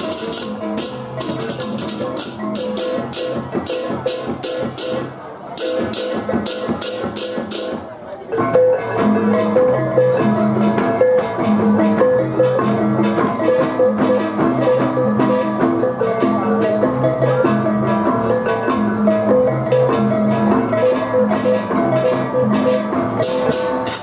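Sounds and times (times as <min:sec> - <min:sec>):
hand cymbals clashing: 0:00.0 - 0:07.8, 0:23.2 - 0:24.0
drum strokes: 0:00.0 - 0:24.0.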